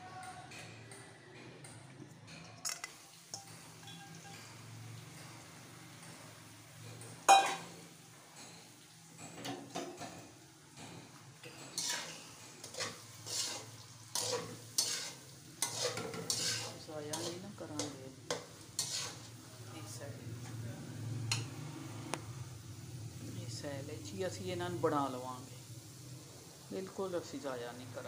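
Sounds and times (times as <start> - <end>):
metal spoon scraping a pan: 10.8 - 19.4.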